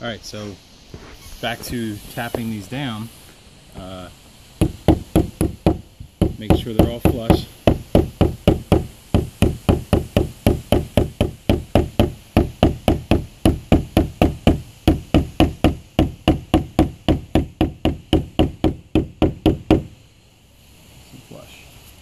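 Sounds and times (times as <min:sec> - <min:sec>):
hammer tapping staples: 0:04.6 - 0:19.9.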